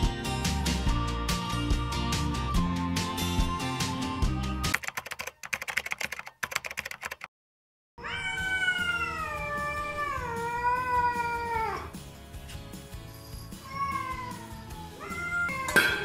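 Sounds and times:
background music: 0:00.0 - 0:04.8, 0:08.4 - 0:16.0
rapid clicks: 0:04.7 - 0:07.3
cat meowing: 0:08.0 - 0:11.9, 0:13.6 - 0:16.0.

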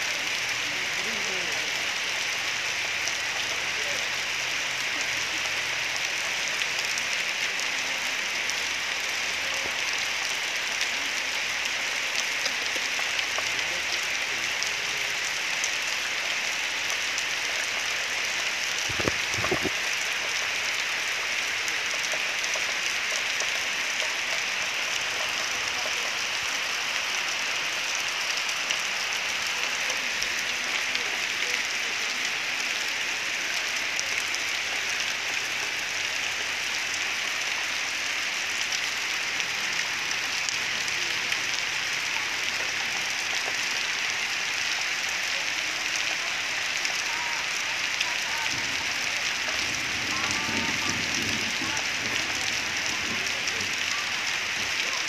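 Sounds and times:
steady hissing noise: 0:18.4 - 0:22.1.

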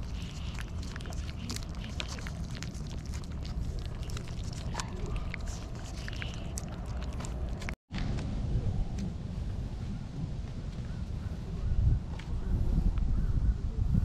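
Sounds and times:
cats licking paste: 0:00.0 - 0:07.8
steady low rumble: 0:00.0 - 0:14.0.

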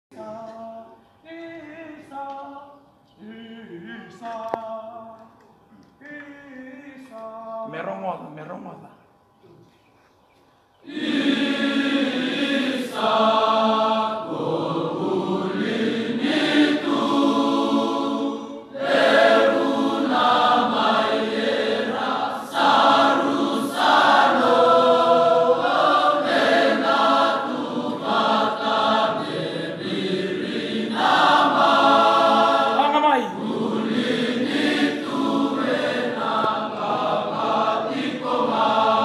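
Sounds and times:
massed choir singing: 0:10.8 - 0:39.0.

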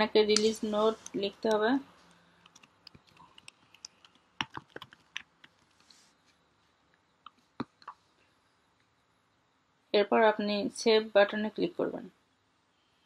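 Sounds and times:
faint keyboard typing: 0:00.3 - 0:06.0.

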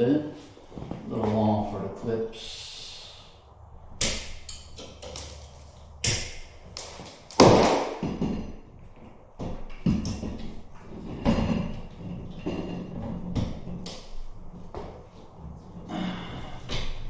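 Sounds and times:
handling knocks and clicks: 0:04.1 - 0:15.1.

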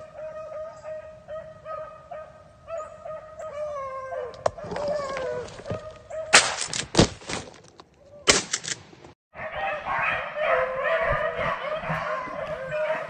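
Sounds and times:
beagles baying: 0:00.0 - 0:06.4, 0:09.4 - 0:13.0.

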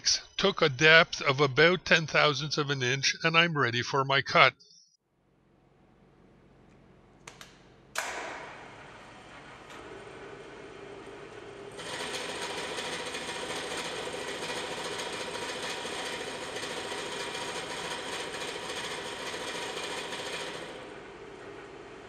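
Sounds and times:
milling machine cutting steel: 0:11.7 - 0:21.6.

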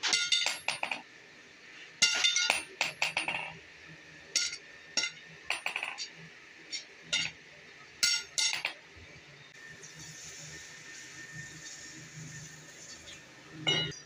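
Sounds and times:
hammer striking metal on anvil: 0:04.4 - 0:06.0, 0:08.0 - 0:08.8, 0:13.7 - 0:14.0
hot metal quenched in water hissing: 0:09.7 - 0:13.6.

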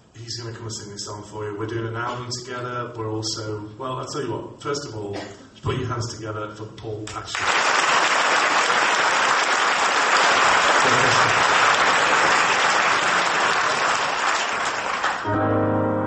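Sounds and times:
audience applauding: 0:07.3 - 0:15.4
keyboard playing: 0:15.1 - 0:16.0.

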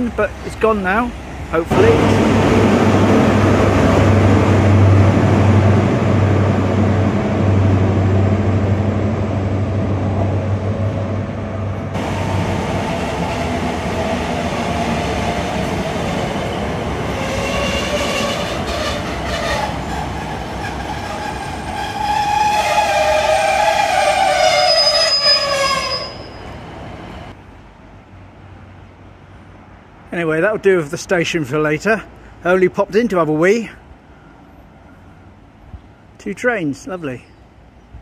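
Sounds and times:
diesel engine humming: 0:00.0 - 0:22.0
train squealing whine: 0:11.6 - 0:27.3.

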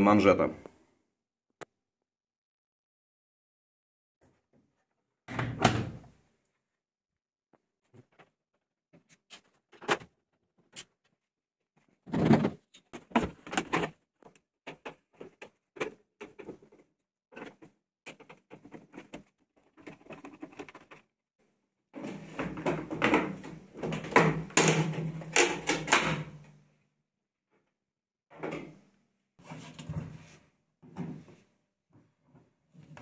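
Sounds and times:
plastic clattering and rubbing: 0:11.8 - 0:21.1.

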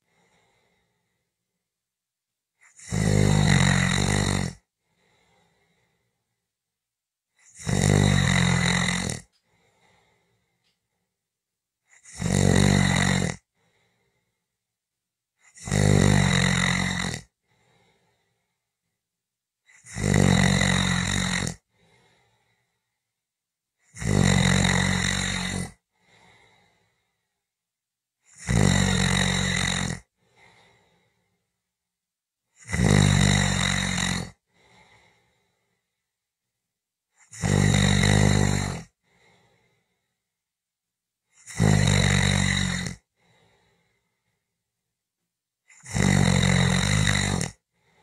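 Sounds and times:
person snoring: 0:00.0 - 0:01.3, 0:02.6 - 0:06.2, 0:07.4 - 0:10.7, 0:11.9 - 0:14.4, 0:15.4 - 0:18.6, 0:19.7 - 0:22.8, 0:23.8 - 0:27.4, 0:28.2 - 0:31.4, 0:32.5 - 0:35.9, 0:37.2 - 0:40.2, 0:41.3 - 0:44.4, 0:45.7 - 0:48.0.

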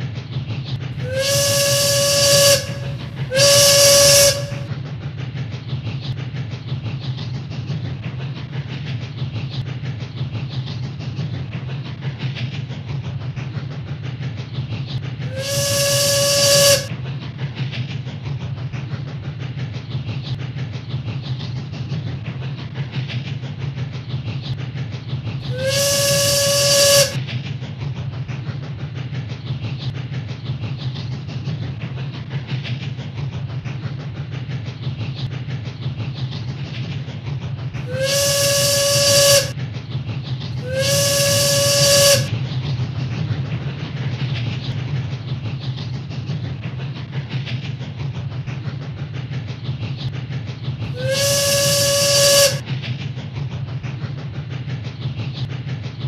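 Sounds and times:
train rumbling along track: 0:00.0 - 0:23.0, 0:24.8 - 0:56.0
steam whistle blasts: 0:01.0 - 0:04.7, 0:15.3 - 0:16.9, 0:25.4 - 0:27.2, 0:37.8 - 0:39.6, 0:40.6 - 0:42.3, 0:50.9 - 0:52.6.

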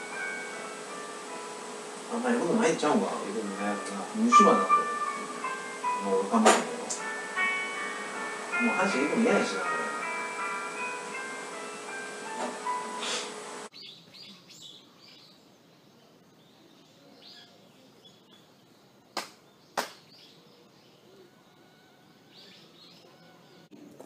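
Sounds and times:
music and voices: 0:02.1 - 0:10.6
faint bird chirps: 0:13.0 - 0:23.8
sharp hand claps: 0:19.2 - 0:20.1.

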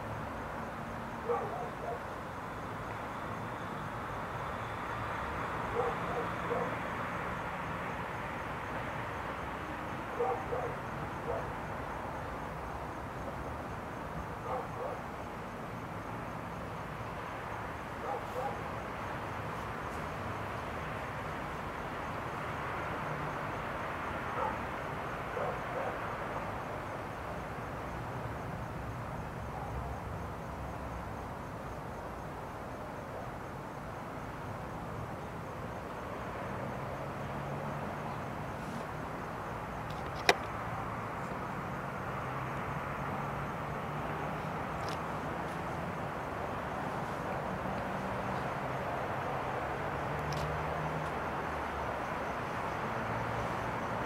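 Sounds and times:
night background noise: 0:00.0 - 0:54.0
sharp click of camera moved: 0:39.9 - 0:40.5.

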